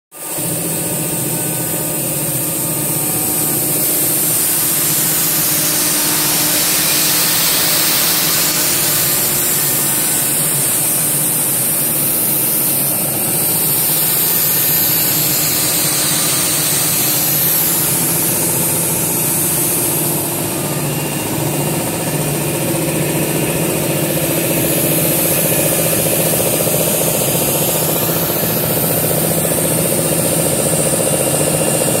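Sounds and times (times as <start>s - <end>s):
cnc router cutting wood: 0.2s - 32.0s.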